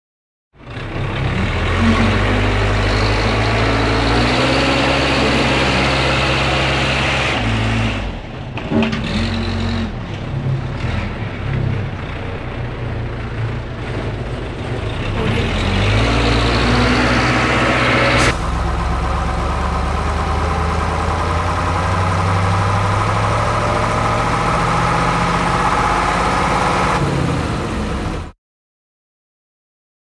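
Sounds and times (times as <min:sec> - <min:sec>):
heavy vehicle engine running: 0:00.6 - 0:28.4.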